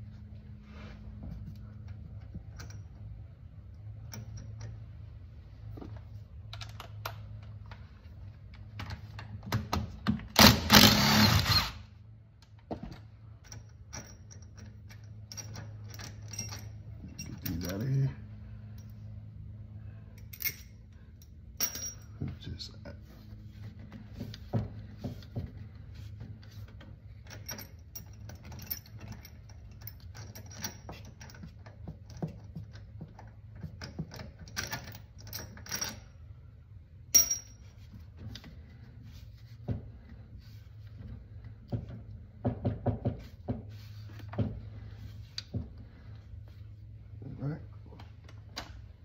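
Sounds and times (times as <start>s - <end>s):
wrench and bolts clinking on metal: 1.7s - 3.2s, 3.8s - 5.0s, 13.3s - 19.0s, 20.2s - 22.4s, 26.7s - 36.2s, 37.1s - 38.5s
steady low hum: 10.4s - 49.0s.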